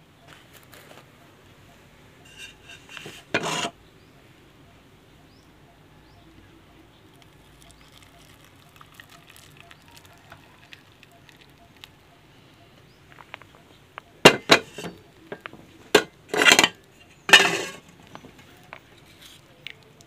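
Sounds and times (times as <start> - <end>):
tea pouring into glass: 7.2 - 11.8.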